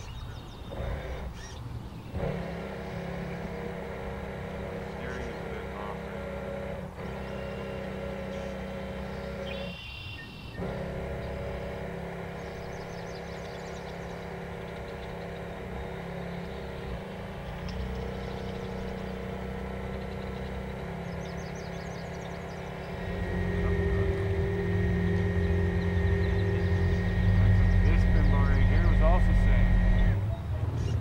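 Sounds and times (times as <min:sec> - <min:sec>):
thin motor whine: 0:00.0 - 0:30.2
model boat motor humming: 0:00.0 - 0:30.3.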